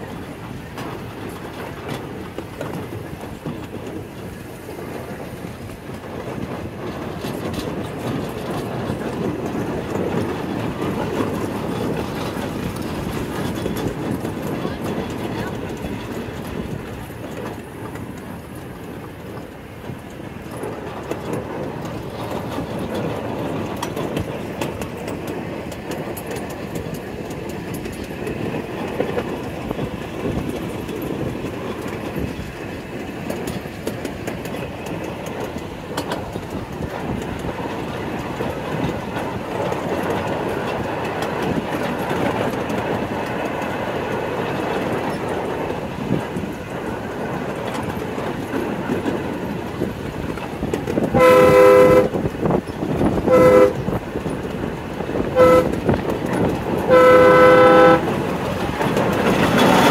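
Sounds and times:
train cars rumbling on track: 0.0s - 59.9s
locomotive horn blasts: 51.1s - 52.2s, 53.2s - 53.8s, 55.3s - 56.0s, 56.9s - 58.1s.

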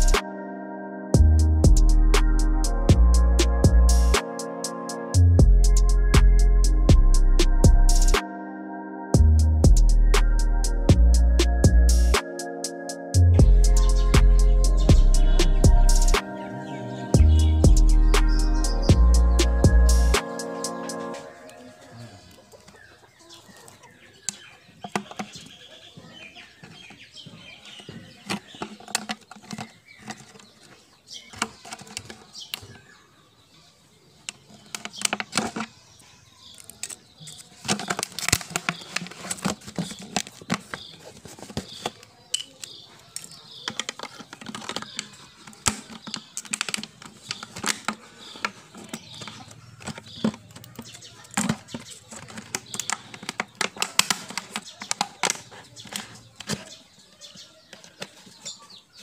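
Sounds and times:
plastic bottles crinkling and clicking: 24.2s - 25.6s, 27.6s - 32.8s, 34.2s - 57.1s.

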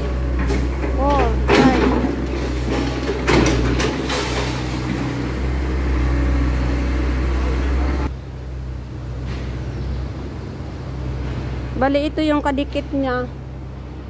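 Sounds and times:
rubble and bricks clattering: 0.0s - 5.5s
excavator diesel engine running: 0.0s - 14.0s.

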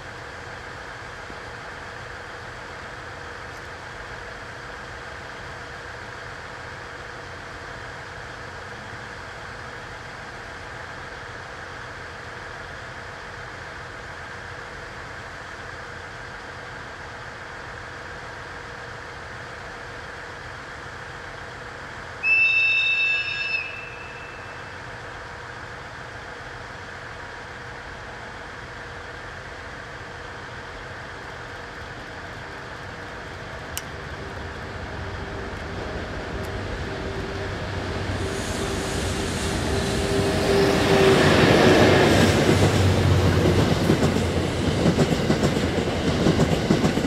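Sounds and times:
train humming: 0.0s - 47.0s
high-pitched train whistle blast: 22.2s - 24.8s.

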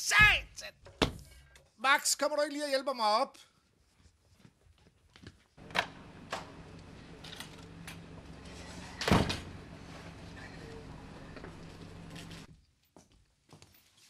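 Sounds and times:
steady low hum: 5.6s - 12.5s
loud sharp door bang: 9.0s - 9.5s.

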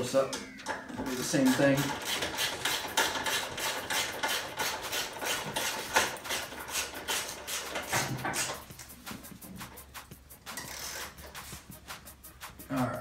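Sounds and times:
ratchet wrench clicking: 1.2s - 9.0s, 9.6s - 12.5s.

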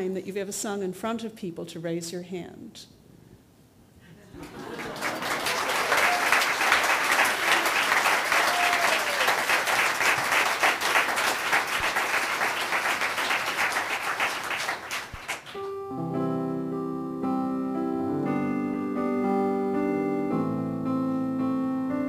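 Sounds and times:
audience applauding: 4.4s - 15.7s.

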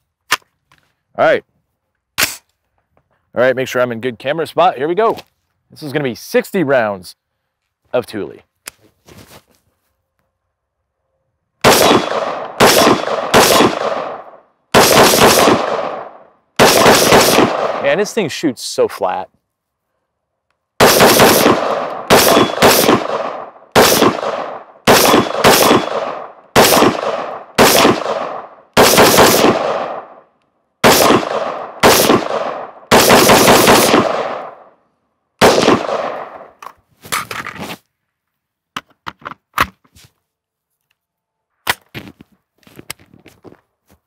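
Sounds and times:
rapid gunshots with echo: 11.6s - 18.1s, 20.8s - 30.2s, 30.8s - 34.7s, 35.4s - 36.5s.

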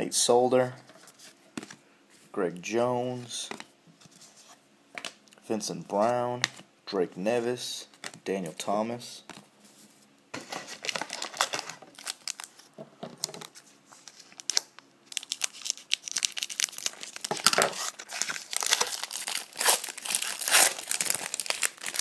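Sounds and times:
plastic wrapper crinkling and tearing: 10.4s - 22.0s.

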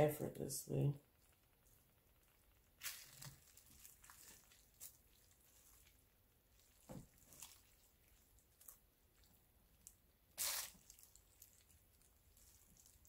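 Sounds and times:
soft wet squishes: 1.0s - 13.0s.

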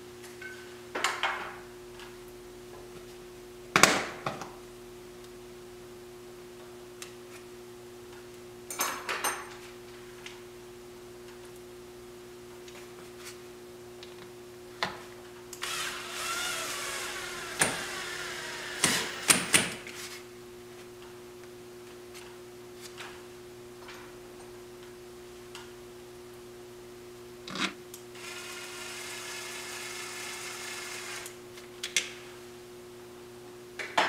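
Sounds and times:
cordless drill driving a screw: 15.6s - 19.5s, 28.2s - 31.4s.

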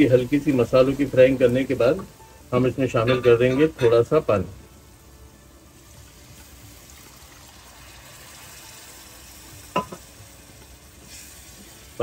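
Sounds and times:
masala sizzling: 0.0s - 12.0s
water poured into a pan: 6.3s - 9.7s.

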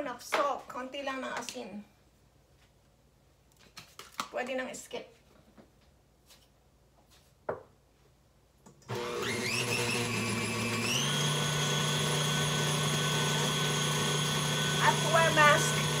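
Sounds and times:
stand mixer motor whine: 8.9s - 16.0s.

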